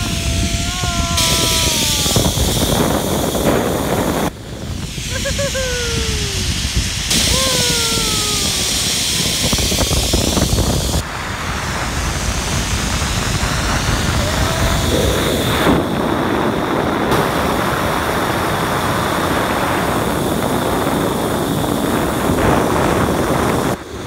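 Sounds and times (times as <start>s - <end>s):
high falling whoops: 0.0s - 4.2s, 5.0s - 9.9s, 14.0s - 16.1s
wind buffeting microphone: 0.0s - 24.0s.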